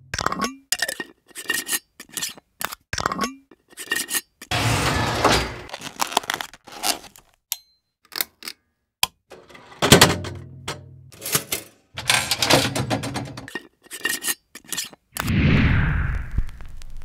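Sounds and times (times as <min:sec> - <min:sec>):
scraping and clattering knocks: 0:09.3 - 0:14.3.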